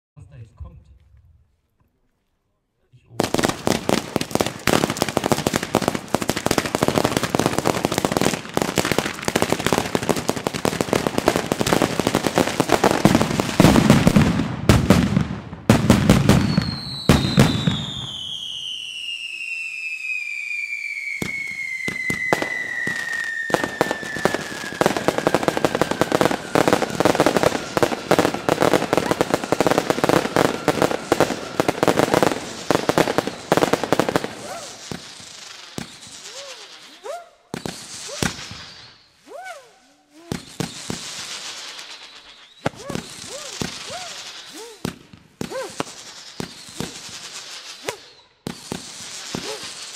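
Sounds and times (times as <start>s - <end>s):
fireworks cracks and bangs: 3.2s - 49.9s
falling firework whistle: 16.1s - 49.9s.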